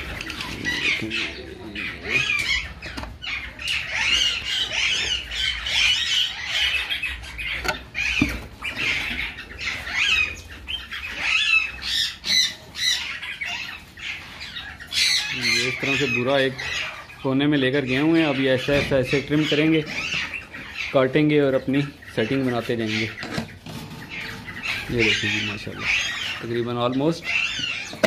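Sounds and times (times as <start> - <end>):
parrots squawking and chirping: 0.0 - 28.0.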